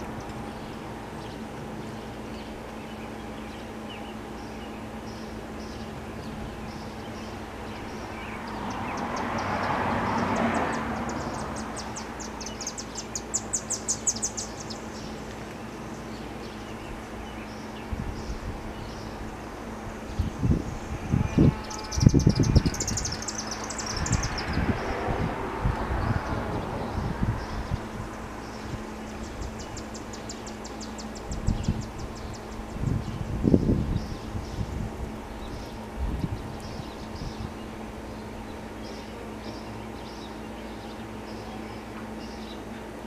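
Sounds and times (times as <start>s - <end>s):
birds trilling: 0.0s - 25.4s, 26.0s - 43.0s
wind gusts on microphone: 17.8s - 29.9s, 31.2s - 38.6s.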